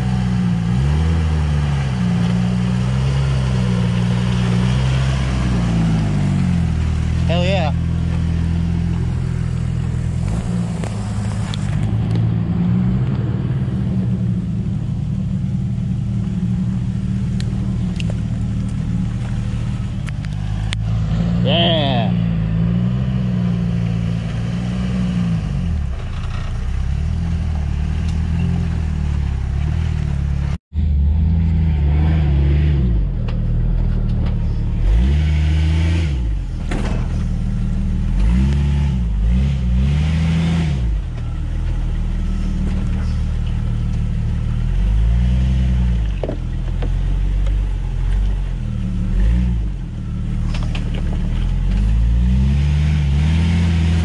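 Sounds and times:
engine revving: 0.0 - 54.0.

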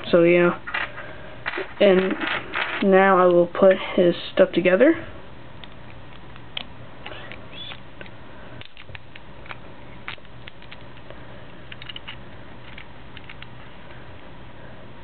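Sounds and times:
faint steady hum: 0.0 - 15.0
plastic parts clicking and scraping: 0.7 - 2.9, 5.6 - 11.1, 11.7 - 13.5.

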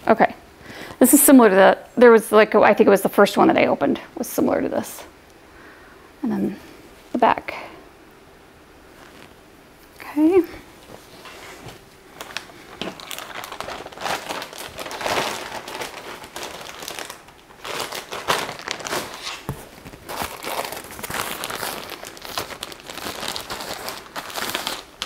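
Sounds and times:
packaging crinkling and rustling: 10.8 - 25.0.

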